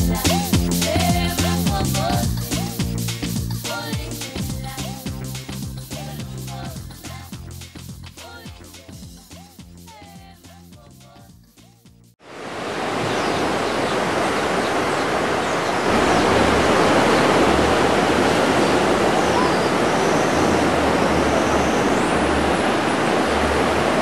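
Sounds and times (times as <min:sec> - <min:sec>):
breaking ocean waves: 0:12.2 - 0:24.0.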